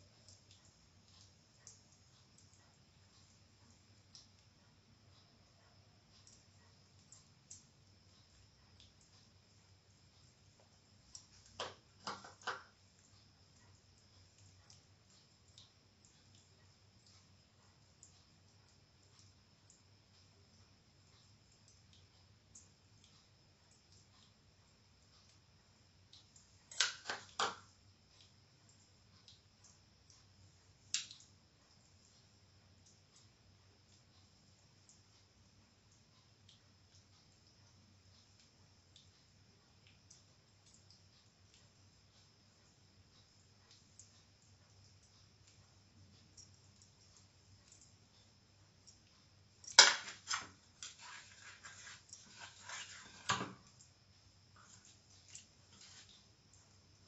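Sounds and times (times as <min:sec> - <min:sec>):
hands rubbing wet fish: 0:50.0 - 0:53.3.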